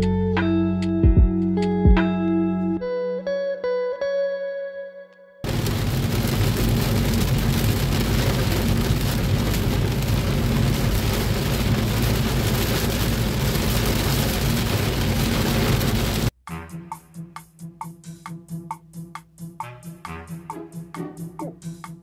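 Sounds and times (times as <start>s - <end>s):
heavy rain on a car: 5.4s - 16.3s
road and engine rumble: 5.4s - 16.3s.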